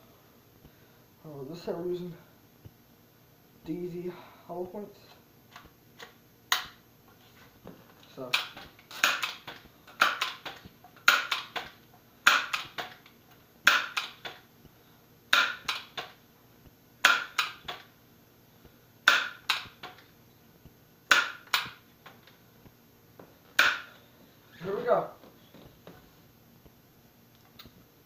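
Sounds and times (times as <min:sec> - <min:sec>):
air rifle pump clacking: 0:08.3 - 0:13.0.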